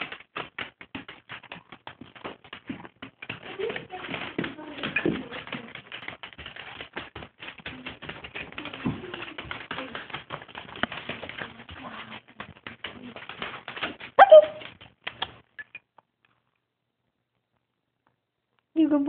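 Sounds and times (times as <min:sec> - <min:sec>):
dog claws scrabbling on wooden floor: 0:00.0 - 0:16.6
dog yapping: 0:14.2 - 0:14.7.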